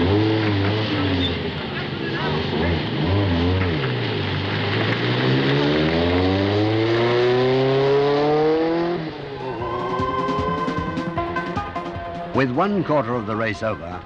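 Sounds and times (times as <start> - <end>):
rally car engine accelerating: 0.0 - 12.0
music: 9.4 - 14.0.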